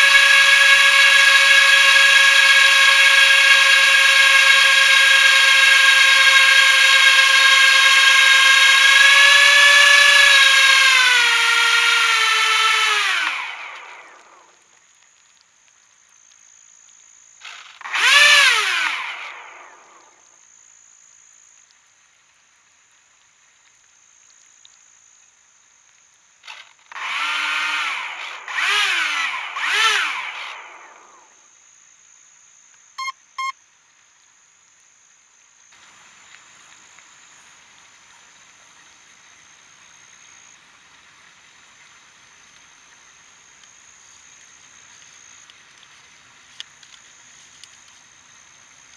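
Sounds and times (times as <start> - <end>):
boat motors whining: 0.0 - 14.2, 17.8 - 19.8, 26.5 - 31.1
short beeps: 33.0 - 33.6.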